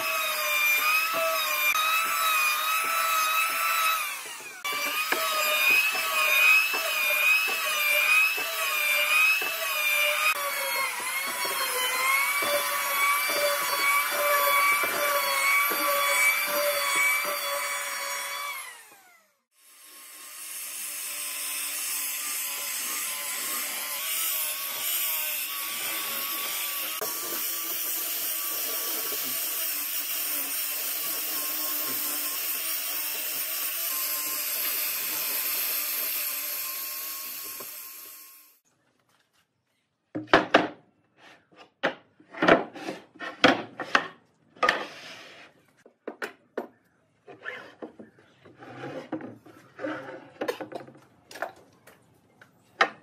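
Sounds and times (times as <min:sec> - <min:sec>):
angle grinder sanding wood: 0:00.0 - 0:38.6
boards and clamps clattering on workbench: 0:40.2 - 0:40.8, 0:41.6 - 0:44.9.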